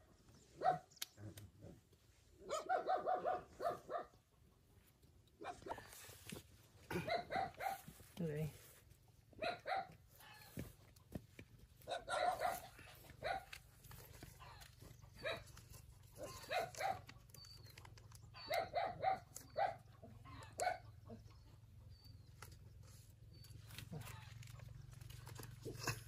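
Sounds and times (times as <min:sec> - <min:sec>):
dog barking: 0:00.6 - 0:00.9, 0:02.4 - 0:04.2, 0:06.9 - 0:07.9, 0:09.4 - 0:10.0, 0:11.8 - 0:13.6, 0:15.2 - 0:15.5, 0:16.2 - 0:17.1, 0:18.4 - 0:21.1.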